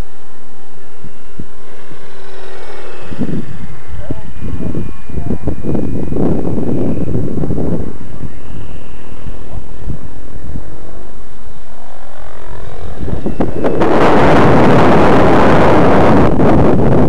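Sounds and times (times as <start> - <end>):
rc helicopter rotor whirring: 0.0 - 17.0
loud rushing noise: 1.5 - 8.7, 11.3 - 17.0.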